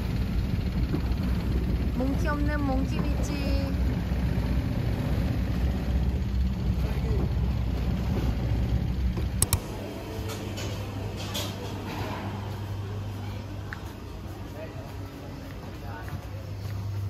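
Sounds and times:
steady low hum: 0.0 - 17.0
engine switch click: 9.4 - 9.7.

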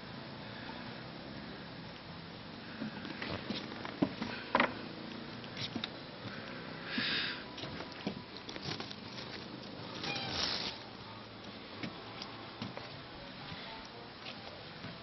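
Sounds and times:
leaves rustling: 7.1 - 11.0.

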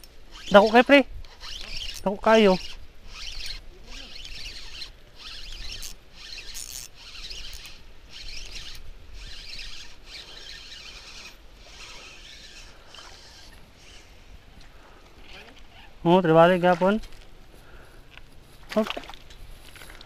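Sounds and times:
fishing reel whirring: 0.0 - 14.4.

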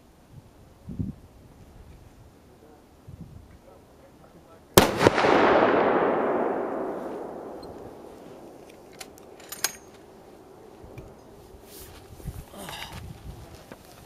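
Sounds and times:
rifle shot echoing: 4.8 - 10.6.

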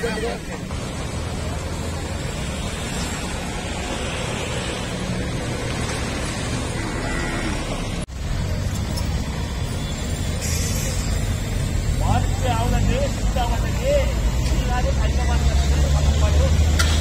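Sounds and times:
roadside rumble: 0.0 - 17.0.

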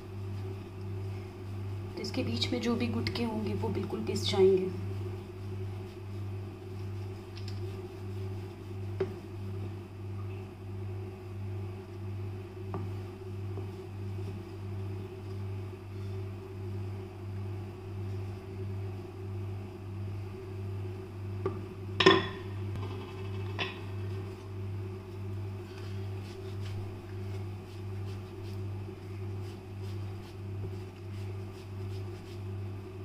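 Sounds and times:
rolling pin on wooden board: 8.8 - 9.3.

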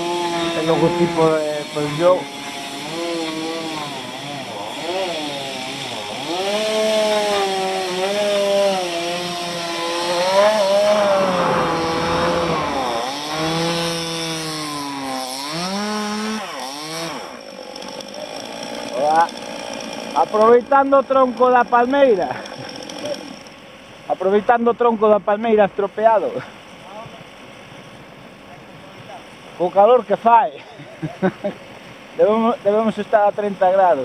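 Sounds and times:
chainsaw revving and cutting wood: 0.0 - 24.4.

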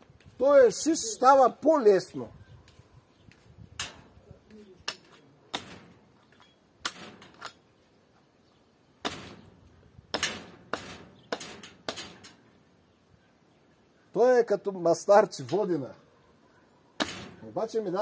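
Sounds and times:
sharp knocks and clacks: 10.2 - 12.4.

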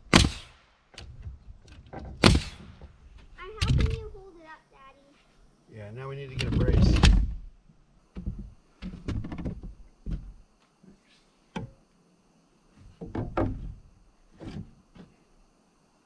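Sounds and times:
wooden board thunks and knocks: 1.0 - 4.0, 6.4 - 7.5, 8.1 - 10.4, 11.6 - 11.8, 12.8 - 15.1.

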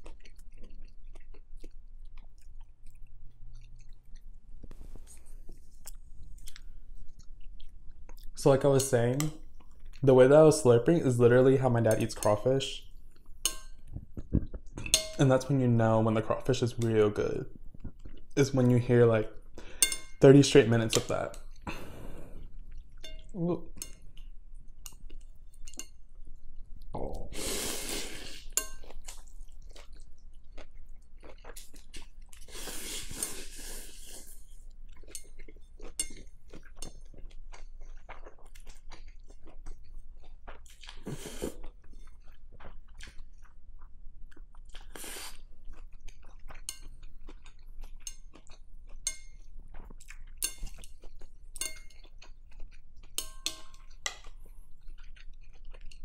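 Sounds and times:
chewing: 0.0 - 8.4, 16.3 - 20.1, 27.8 - 56.0
noodle slurping: 27.4 - 28.5
chopsticks clicking on glass bowl: 53.2 - 54.2.

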